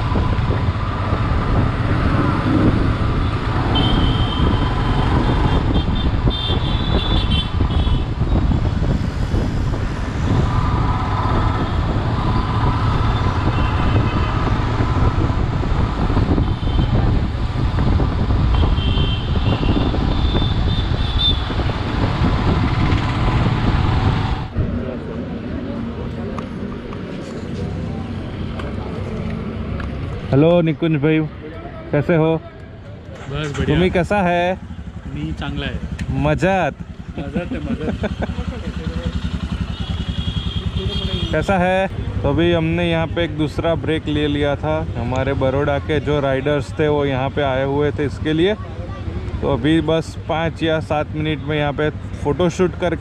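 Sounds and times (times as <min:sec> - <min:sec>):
wind rushing over microphone: 0:00.0 - 0:30.3
town traffic: 0:00.0 - 0:53.0
vehicle horns honking: 0:03.6 - 0:08.1, 0:18.5 - 0:21.6, 0:39.6 - 0:41.5
motorcycle engine running: 0:34.6 - 0:41.3.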